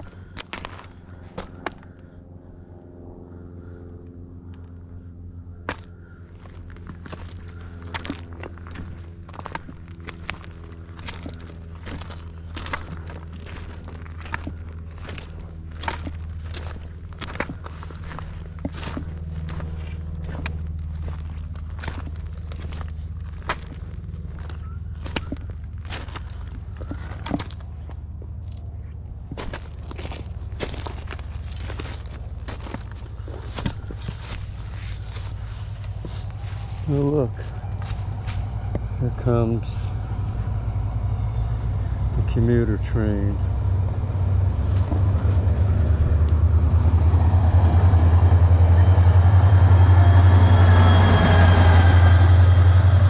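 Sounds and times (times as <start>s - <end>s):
footsteps crunching on gravel: 0.0s - 2.1s, 5.6s - 41.1s, 42.3s - 45.5s
steady low hum: 0.0s - 53.0s.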